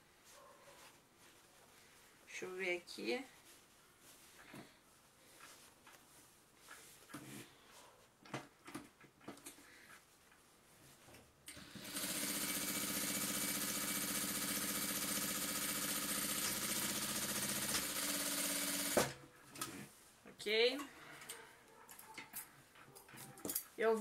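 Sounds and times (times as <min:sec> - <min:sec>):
soft clicks and fabric rustles: 0:00.1 - 0:11.4
sewing machine running: 0:11.5 - 0:19.2.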